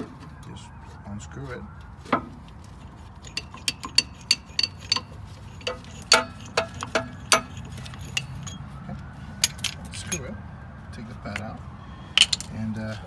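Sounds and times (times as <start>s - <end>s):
sharp metal clicks and clinks: 3.2s - 8.6s.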